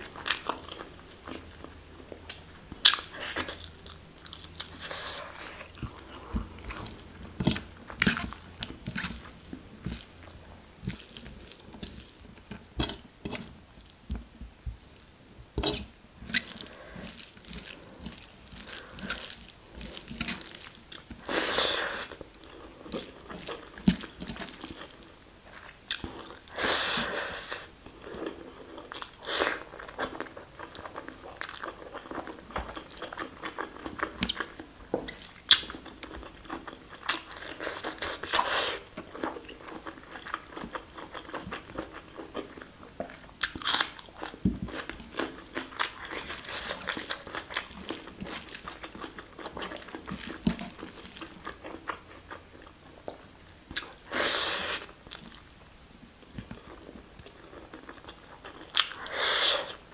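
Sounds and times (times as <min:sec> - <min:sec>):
chewing and mouth smacking: 0:28.1 - 0:54.1, 0:56.4 - 0:59.1.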